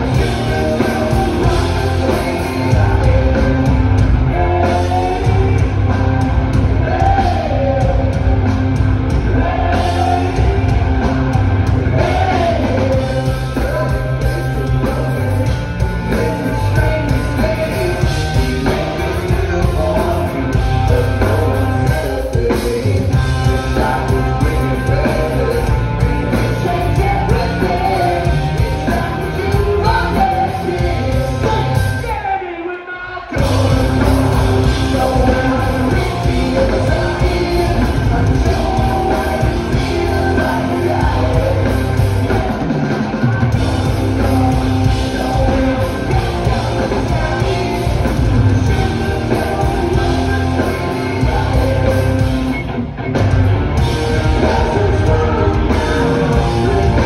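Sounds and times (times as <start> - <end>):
hard rock band playing live: 0.0 - 57.0.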